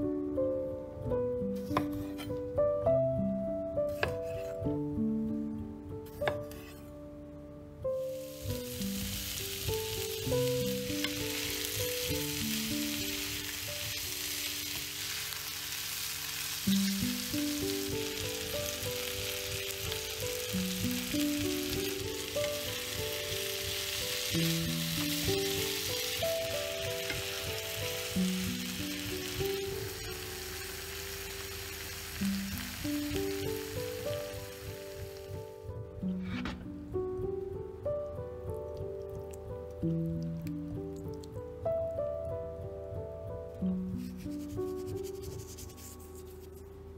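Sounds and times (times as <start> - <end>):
background music of held notes: 0.0 - 46.9
vegetables sizzling in oil: 8.1 - 35.5.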